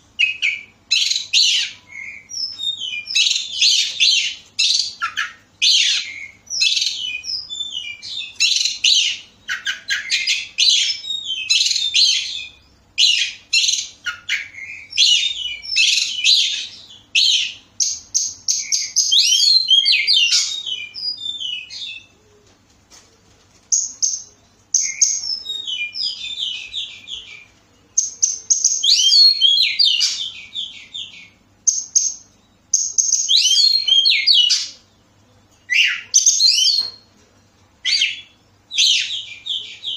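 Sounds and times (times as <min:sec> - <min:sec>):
bird singing whistled notes and trills: 0:00.0 - 0:22.3, 0:23.7 - 0:39.9.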